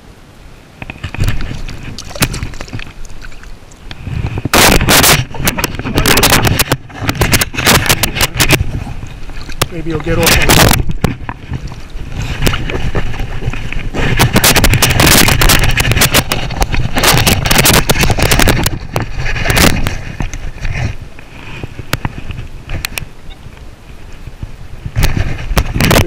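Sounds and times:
water splashing and sloshing: 0.8s - 24.2s
fish thrashing in water: 1.0s - 3.8s, 4.4s - 20.8s.

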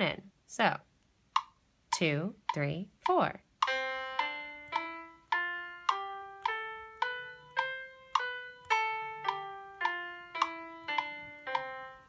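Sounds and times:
metronome click: 1.4s - 12.0s
piano playing a scale: 3.6s - 12.0s.

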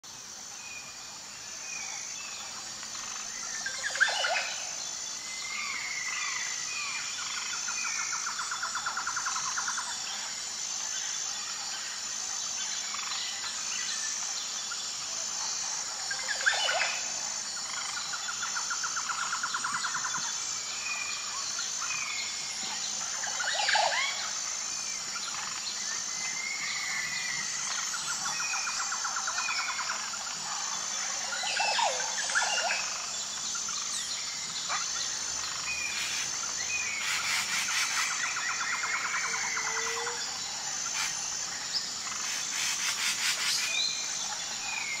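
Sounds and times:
pulsing high-pitched drone: 26.4s - 45.0s
birds chirping and calling: 34.7s - 45.0s.

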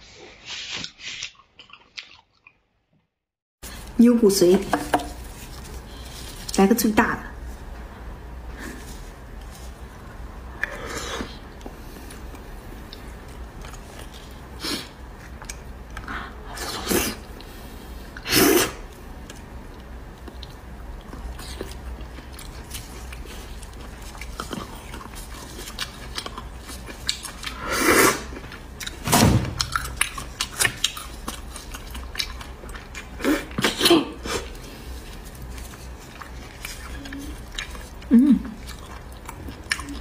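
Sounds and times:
wet chewing: 0.8s - 2.6s, 18.9s - 27.6s, 29.6s - 40.0s.

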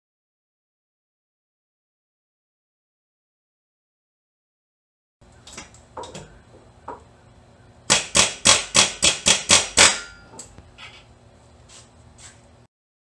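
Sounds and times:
sharp knocks on car parts: 7.9s - 10.2s.

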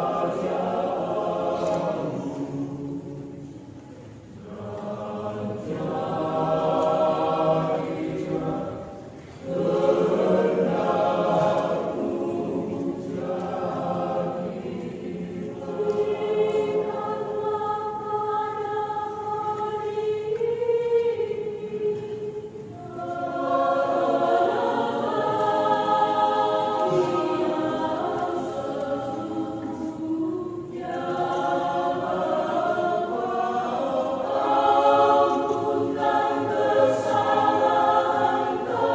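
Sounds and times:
mixed choir singing: 0.0s - 38.9s.

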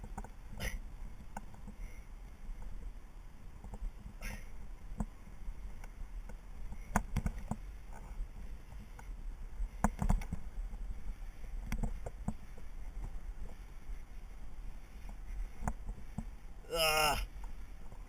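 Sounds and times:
rope rig clicks and knocks: 0.0s - 1.8s, 3.6s - 10.9s, 11.6s - 13.6s, 15.0s - 16.4s
wind rumble on microphone: 0.0s - 18.0s.

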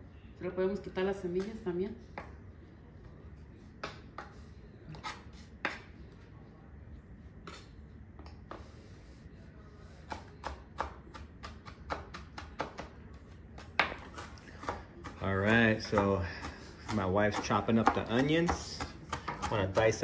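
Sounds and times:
knife chopping on cutting board: 10.0s - 13.0s, 13.6s - 20.0s.

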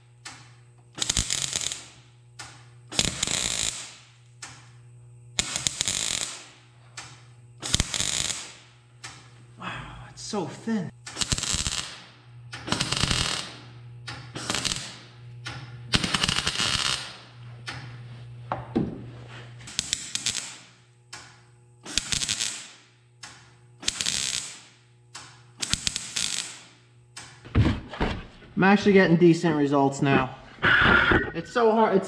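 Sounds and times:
welder crackling bursts: 0.9s - 2.1s, 2.9s - 4.3s, 5.4s - 6.6s, 7.6s - 8.8s, 10.2s - 13.6s, 14.4s - 15.1s, 15.9s - 17.3s, 19.7s - 20.9s, 21.8s - 27.4s.

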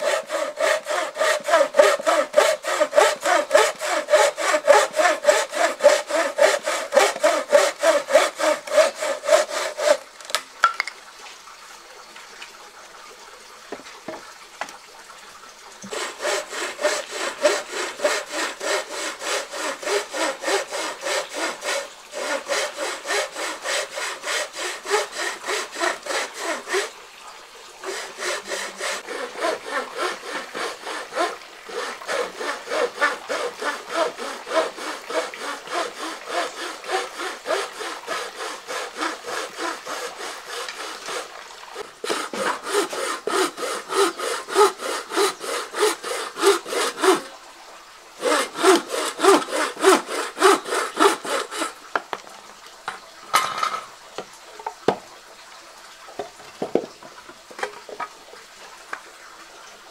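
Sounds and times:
hand saw cutting wood: 0.0s - 10.4s, 15.8s - 27.0s, 27.8s - 47.4s, 48.2s - 51.8s.

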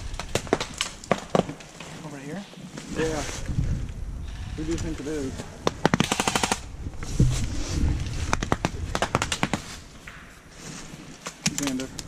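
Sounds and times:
airsoft gun rapid fire: 5.7s - 6.7s.

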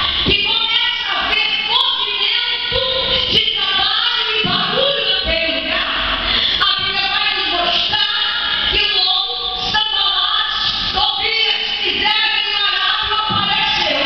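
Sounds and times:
woman singing into microphone: 0.0s - 14.0s.

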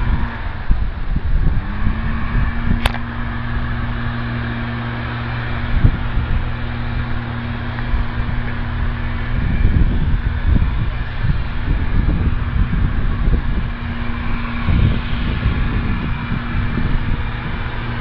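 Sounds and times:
machine hum: 0.0s - 18.0s
wind rumble on microphone: 0.0s - 18.0s.

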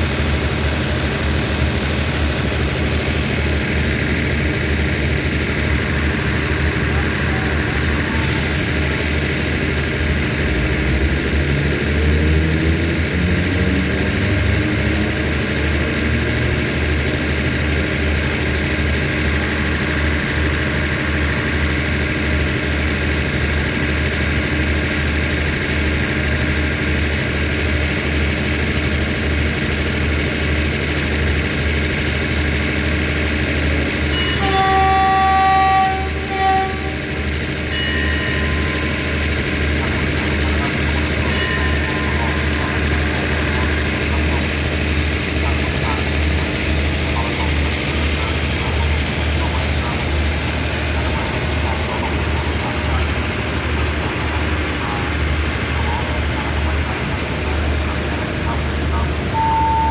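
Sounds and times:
diesel train engine idling: 0.0s - 59.9s
train horn blasts: 34.1s - 39.0s, 59.3s - 59.9s.

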